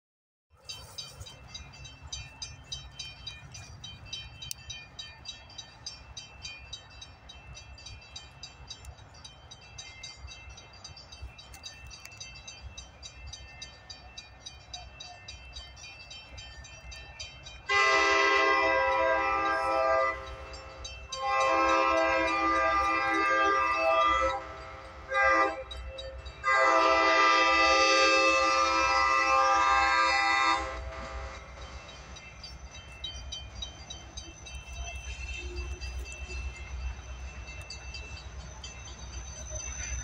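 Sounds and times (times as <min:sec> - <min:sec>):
locomotive horn chord: 0:17.7 - 0:31.6.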